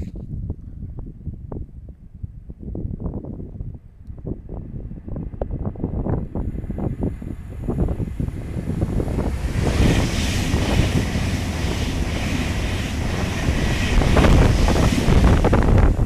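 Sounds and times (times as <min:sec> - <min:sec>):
wind buffeting microphone: 0:00.0 - 0:16.0
electric train passing: 0:05.4 - 0:16.0.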